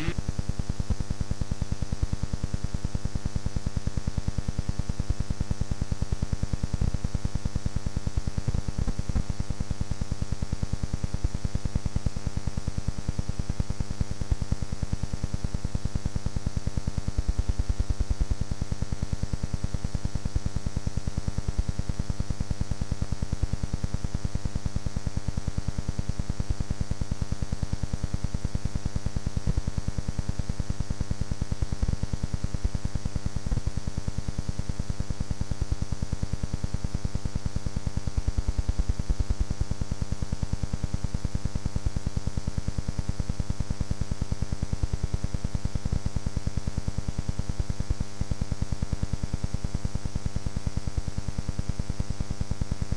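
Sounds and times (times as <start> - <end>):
electrical buzz and hum: 0.0 - 52.9.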